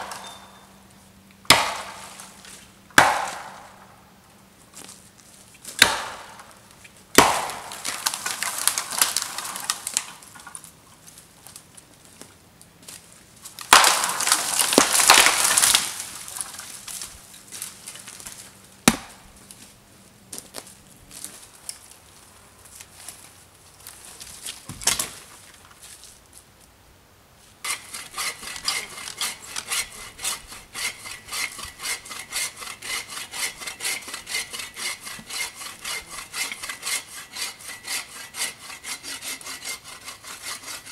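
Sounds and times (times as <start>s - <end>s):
branches crashing rustle: 1.5s - 3.8s, 4.7s - 26.5s
dead wood snapping: 7.2s - 10.5s, 13.6s - 17.1s
bow saw cutting log: 27.6s - 40.9s.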